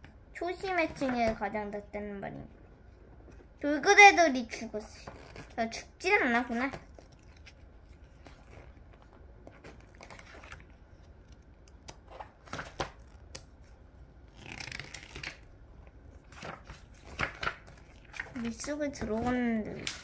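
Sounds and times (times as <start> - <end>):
comic book pages turning: 4.9 - 20.0
page swishing: 6.4 - 13.7, 16.1 - 20.0.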